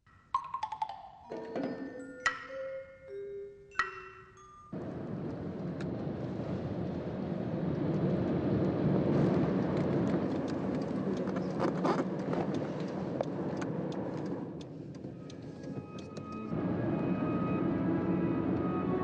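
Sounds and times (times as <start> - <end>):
car road and engine noise: 4.8 - 19.0.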